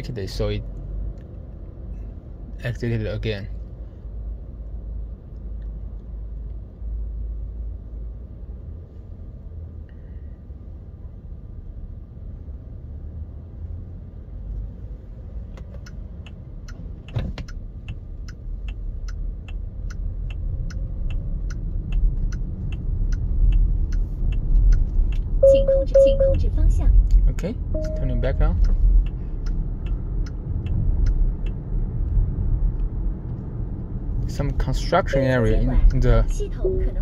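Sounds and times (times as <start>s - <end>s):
low car cabin rumble: 14.1s - 37.0s
turn signal ticking: 14.3s - 37.0s.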